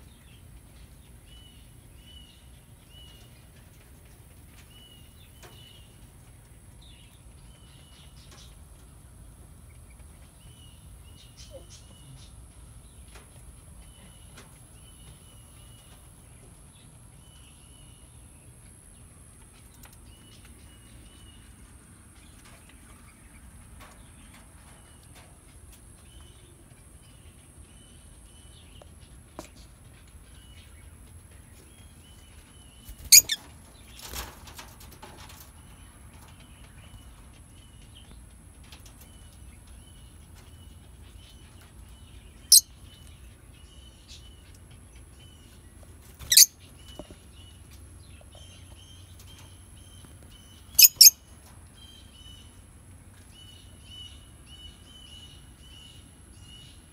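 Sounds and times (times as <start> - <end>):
faint bird twittering: 32.8 - 33.4, 48.4 - 51.2
wings fluttering: 32.8 - 35.6
shrill bird calls: 50.8 - 51.2.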